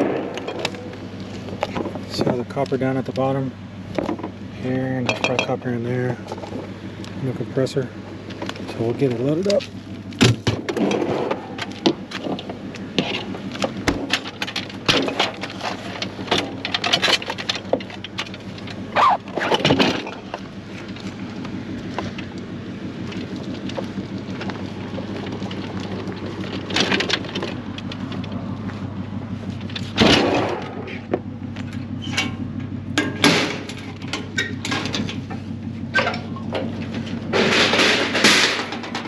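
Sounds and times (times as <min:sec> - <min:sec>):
hand truck wheels rolling on concrete: 0:08.3 - 0:30.0
appliance clattering and knocking: 0:10.2 - 0:18.7.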